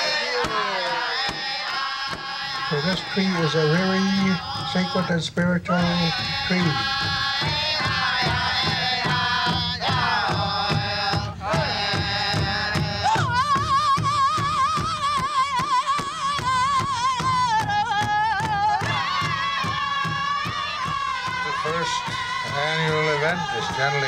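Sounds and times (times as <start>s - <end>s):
group singing: 0.0s - 24.0s
large hide drum beat: 0.0s - 24.0s.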